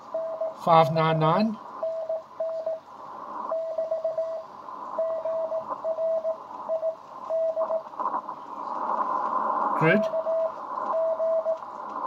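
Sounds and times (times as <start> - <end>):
morse code tone: 0.0 - 0.9, 1.8 - 2.8, 3.5 - 7.8, 9.8 - 11.6
radio band noise hiss: 0.0 - 12.0.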